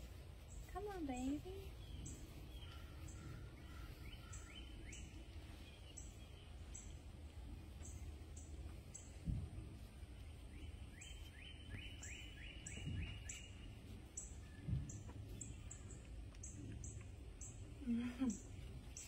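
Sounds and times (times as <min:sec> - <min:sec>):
dull low thumps: 0:00.0 - 0:17.6
bird singing repeated notes: 0:10.3 - 0:17.6.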